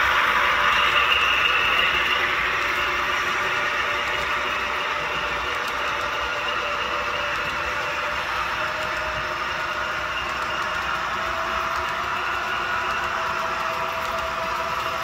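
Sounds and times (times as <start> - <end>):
model train wheels rolling on track: 0.0 - 15.0.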